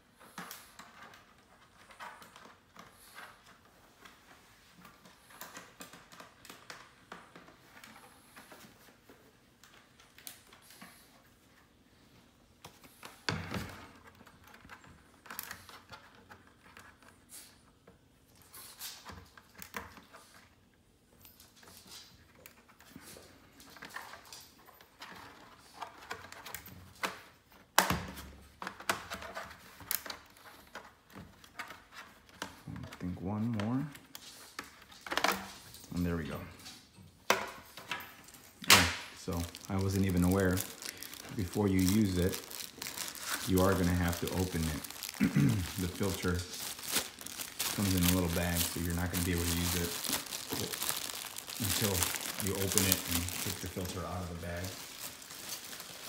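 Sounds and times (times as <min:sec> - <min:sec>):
hands handling plastic device: 0:37.3 - 0:56.0.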